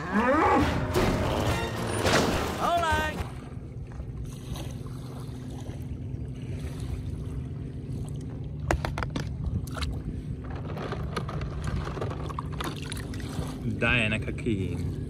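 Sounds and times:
faint hum: 3.2s - 15.0s.

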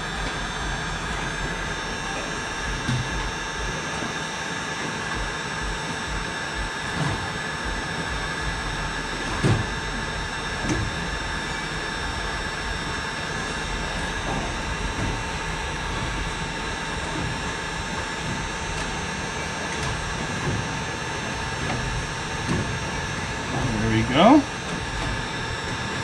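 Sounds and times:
low thumps: 5.1s - 19.0s.

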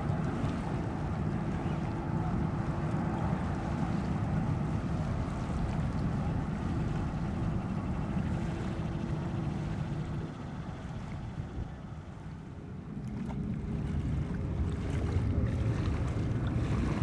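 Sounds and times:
jet engines rumbling: 0.7s - 13.6s
wind on microphone: 13.2s - 17.0s.

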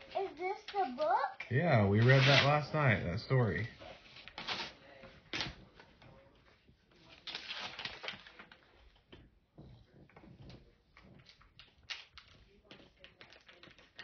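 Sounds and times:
wrapping paper rustling: 0.0s - 2.8s, 3.6s - 5.9s, 7.0s - 9.0s.

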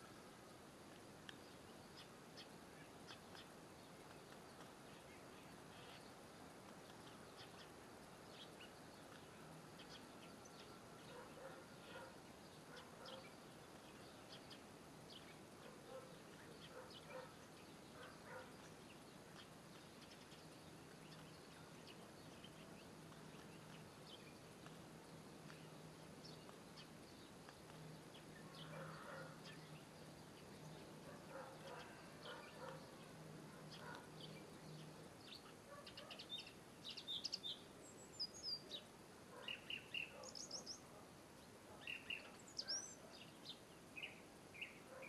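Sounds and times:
distant small birds chirping: 0.0s - 45.0s
faint steady low hum: 0.0s - 45.0s.

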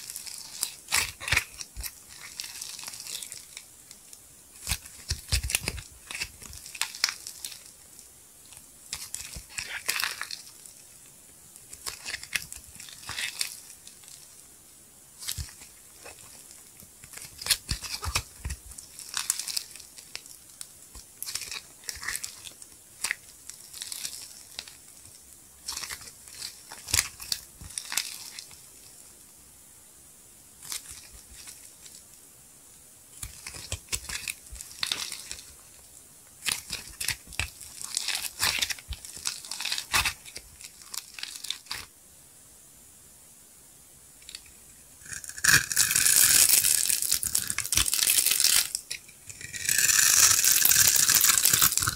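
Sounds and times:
soap squeezed and torn by hand: 36.4s - 41.9s, 45.1s - 51.9s.

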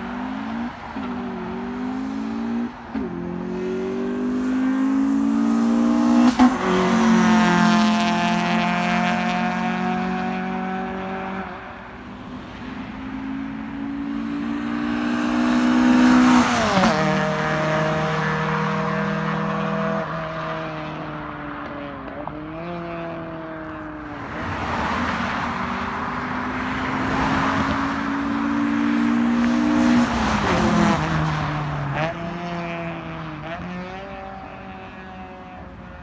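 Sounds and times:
car engine accelerating through gears: 0.0s - 11.5s, 13.3s - 23.5s.

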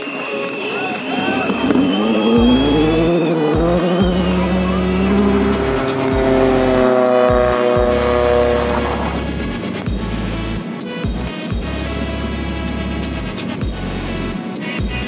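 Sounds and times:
car engine revving hard: 1.3s - 10.7s.

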